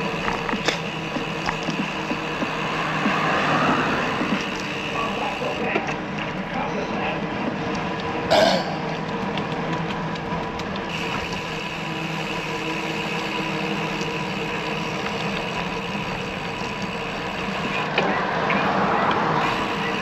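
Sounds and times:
tyre and wind noise: 0:00.0 - 0:08.3
steady mechanical whine: 0:00.0 - 0:20.0.

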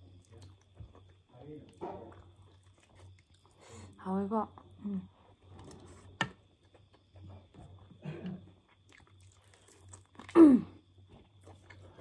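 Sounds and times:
chewing and biting: 0:00.2 - 0:03.6, 0:08.6 - 0:10.4, 0:11.0 - 0:12.0.

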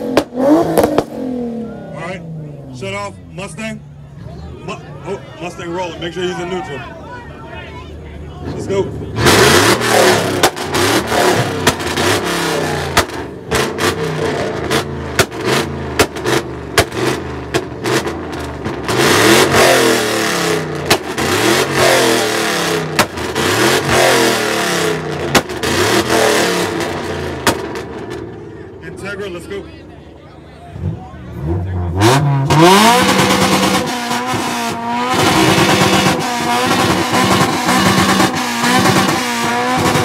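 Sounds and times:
car engine revving: 0:00.0 - 0:06.5, 0:08.3 - 0:29.7, 0:30.6 - 0:40.0
exhaust pops and cracks: 0:15.1 - 0:18.8, 0:23.0 - 0:23.2, 0:27.4 - 0:28.3.

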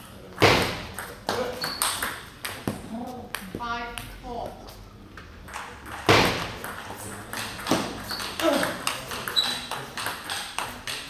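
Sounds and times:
table tennis ball clicking: 0:05.5 - 0:11.0.

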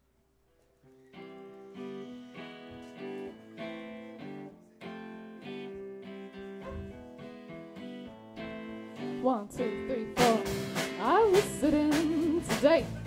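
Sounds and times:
guitar strumming chords: 0:01.2 - 0:13.0.

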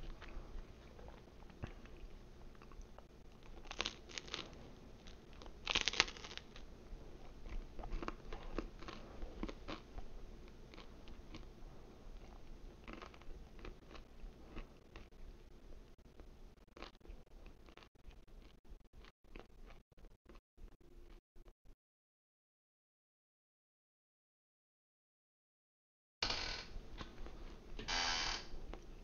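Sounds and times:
person chewing crunchy pizza: 0:00.0 - 0:20.4.

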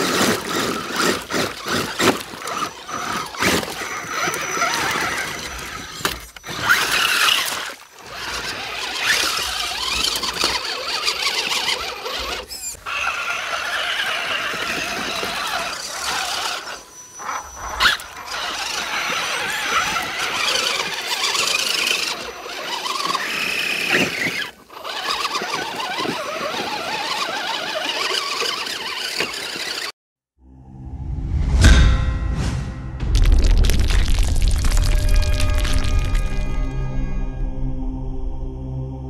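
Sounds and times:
toy truck motors whining: 0:00.0 - 0:30.0.

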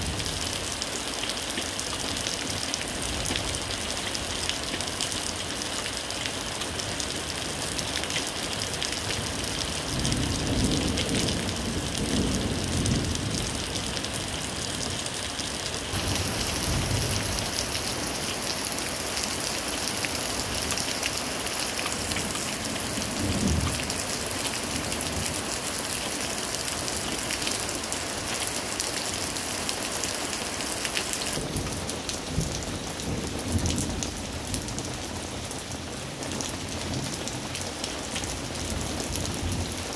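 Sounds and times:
heavy rain pattering: 0:00.0 - 0:39.9
thunder rumbling: 0:09.9 - 0:15.0, 0:15.9 - 0:18.4.

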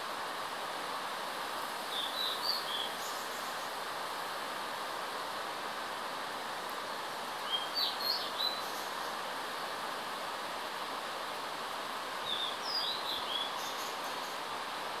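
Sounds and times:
distant waterfall rushing: 0:00.0 - 0:15.0
songbird singing: 0:01.9 - 0:03.8, 0:07.4 - 0:09.2, 0:12.2 - 0:14.4.

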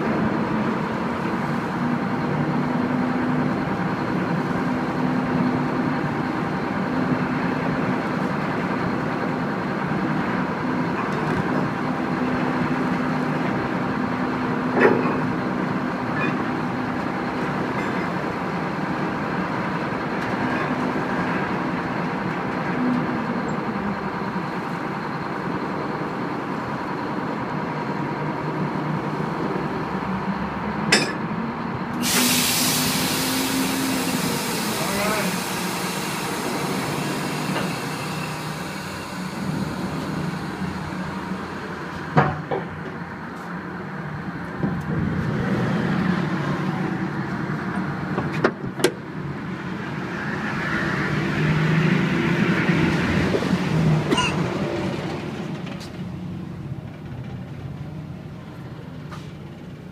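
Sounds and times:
boat engines droning: 0:00.0 - 0:59.9
metal clanks of tow gear: 0:30.9 - 0:31.3, 0:54.1 - 0:54.5.

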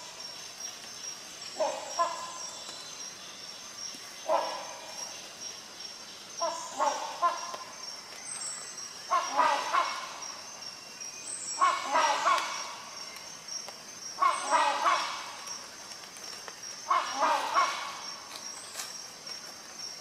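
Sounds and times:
hornbill calling: 0:06.4 - 0:07.7, 0:09.1 - 0:10.4, 0:11.5 - 0:13.0, 0:14.2 - 0:15.6, 0:16.8 - 0:18.3.

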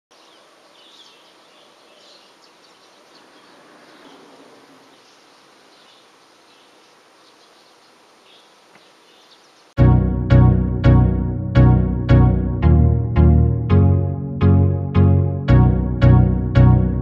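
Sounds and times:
steady low hiss: 0:00.2 - 0:09.8.

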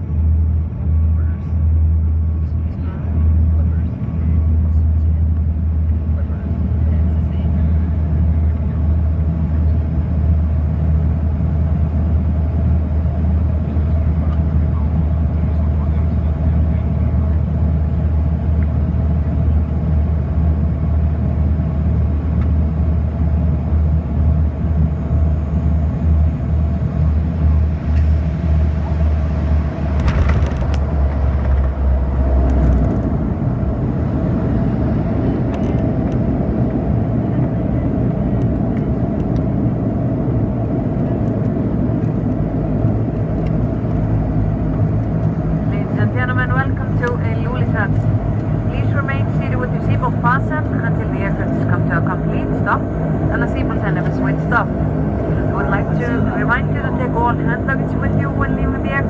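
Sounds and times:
low propeller drone: 0:00.0 - 0:59.0.

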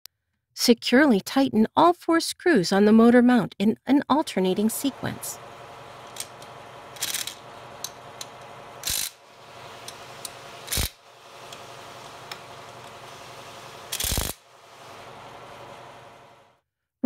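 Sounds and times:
impact driver bursts: 0:08.8 - 0:09.2, 0:10.6 - 0:11.0, 0:13.9 - 0:14.4.

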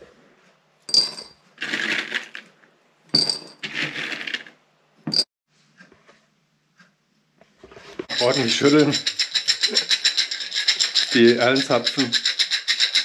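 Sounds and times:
cones rattling in glass jar: 0:01.0 - 0:02.5, 0:08.1 - 0:13.0.

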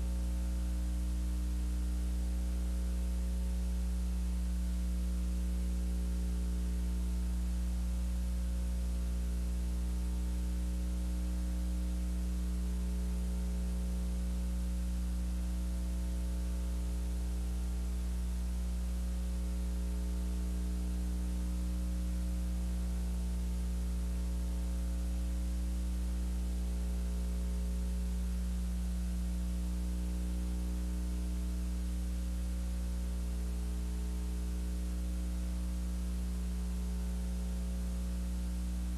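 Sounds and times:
electrical mains hum: 0:00.0 - 0:38.9.

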